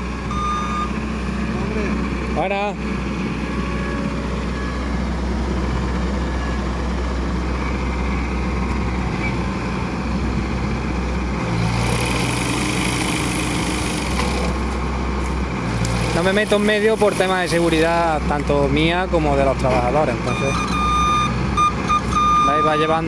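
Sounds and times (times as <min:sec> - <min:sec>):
machine engine running: 0:11.3 - 0:18.2.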